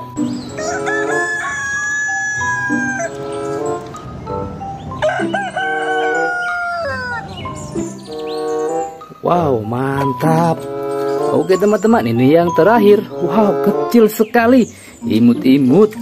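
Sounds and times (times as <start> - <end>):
rooster crowing: 0.5 - 3.3, 4.9 - 7.4.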